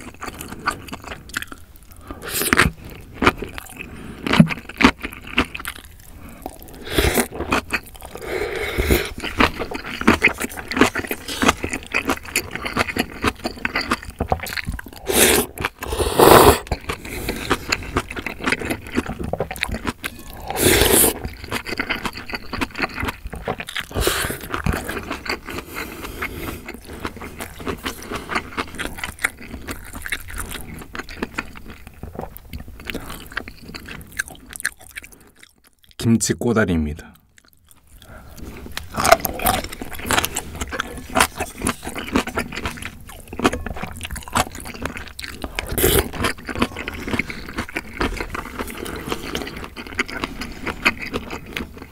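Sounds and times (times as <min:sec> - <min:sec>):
wet chewing and crunching: 0:00.0 - 0:36.2, 0:37.2 - 0:51.9
slurping noodles: 0:02.0 - 0:29.1, 0:44.4 - 0:51.9.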